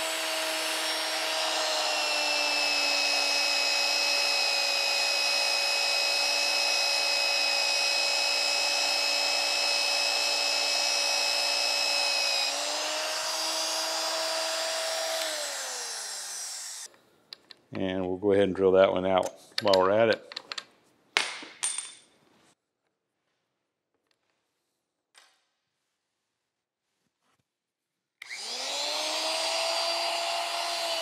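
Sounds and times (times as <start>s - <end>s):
drill motor whine: 0.0s - 16.9s, 28.2s - 31.0s.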